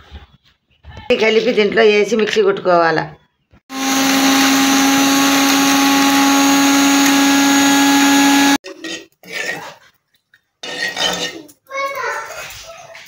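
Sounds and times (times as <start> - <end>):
mixer grinder whining: 3.7 - 8.6.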